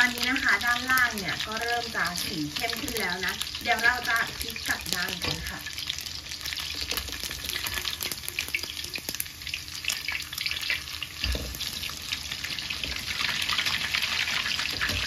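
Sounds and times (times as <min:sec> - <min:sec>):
omelette sizzling in hot oil: 0:00.0 - 0:15.0
spatula turning omelette thump: 0:05.1 - 0:05.5, 0:11.2 - 0:11.7.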